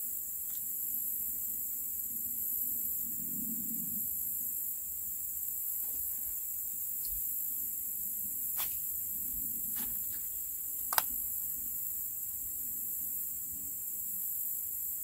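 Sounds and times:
high-pitched insect chorus: 0:00.0 - 0:15.0
sharp clicks: 0:10.9 - 0:11.2.

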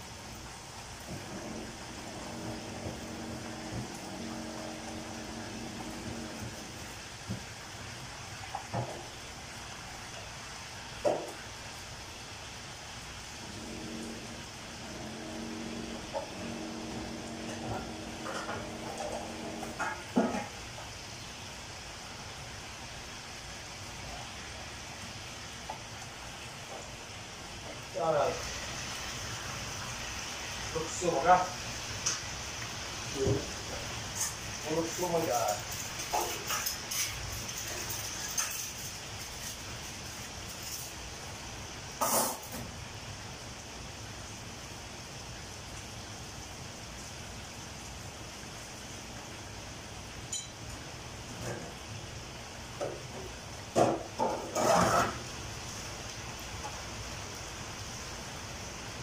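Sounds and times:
chicken sizzling in oil: 0:00.0 - 0:45.5.

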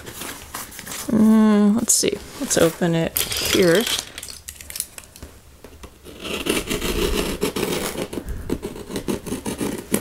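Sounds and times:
scissors cutting cardboard: 0:06.0 - 0:10.0.

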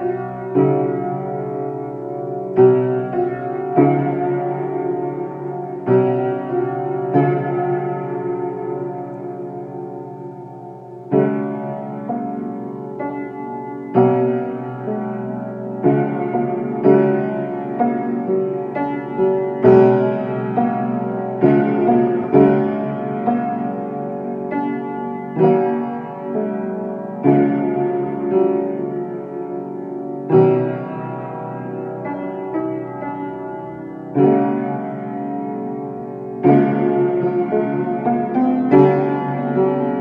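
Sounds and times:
slow piano chords: 0:00.0 - 0:40.0.

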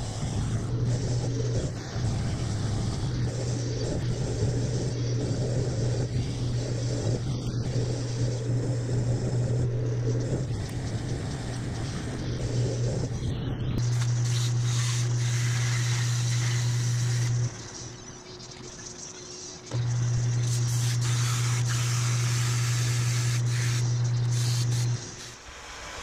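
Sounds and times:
metal lathe motor humming: 0:00.0 - 0:25.4
lathe tool cutting metal: 0:13.8 - 0:18.1, 0:19.7 - 0:25.4.

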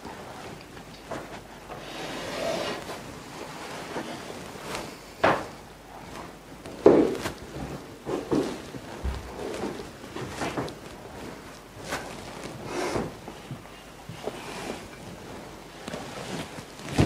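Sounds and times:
book handling rustling: 0:14.8 - 0:17.0.

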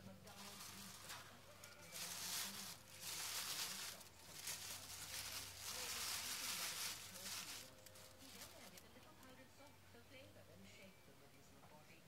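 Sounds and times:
tissue paper rustling: 0:00.0 - 0:08.8.

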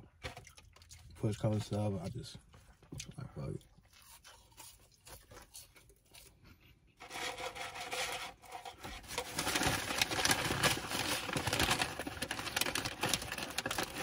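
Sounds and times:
rustling and scraping of burger wrapper: 0:03.9 - 0:14.0.

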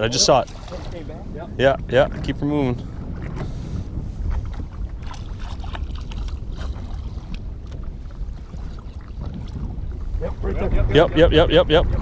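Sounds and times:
water lapping against boat: 0:00.0 - 0:12.0
wind rumbling on microphone: 0:00.0 - 0:12.0.

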